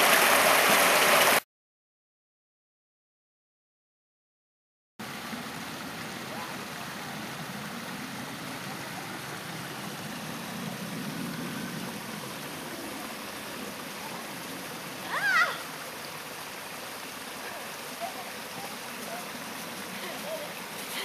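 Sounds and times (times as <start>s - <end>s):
steady rushing background noise: 5.3s - 15.3s.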